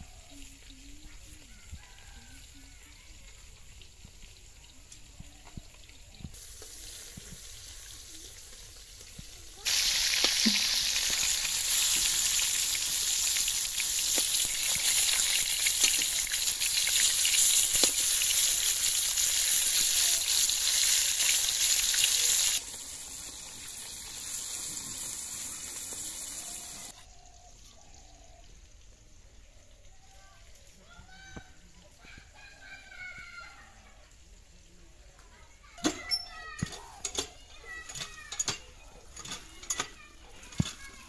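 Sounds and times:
fish sizzling in hot oil: 0:00.1 - 0:27.2
steel spatula clicks and scrapes: 0:35.8 - 0:41.0.

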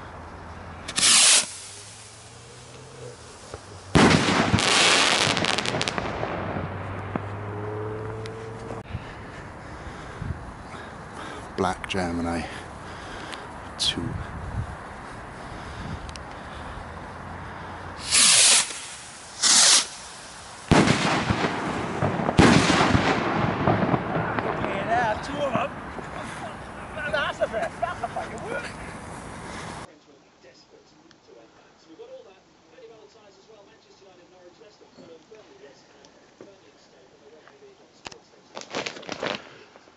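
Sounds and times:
firework crackling: 0:00.8 - 0:07.4, 0:18.0 - 0:29.9, 0:38.5 - 0:39.9
firework rocket bursting: 0:00.8 - 0:07.6, 0:18.0 - 0:26.1, 0:38.6 - 0:39.7.

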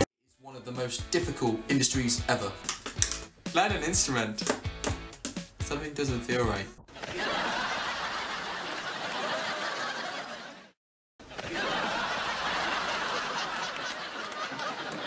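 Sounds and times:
laughter: 0:06.9 - 0:15.0.

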